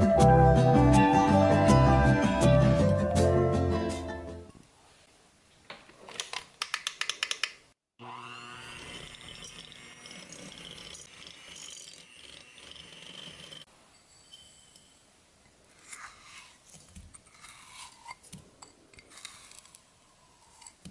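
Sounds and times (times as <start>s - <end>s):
electric hand mixer whining: 8.0s - 13.7s.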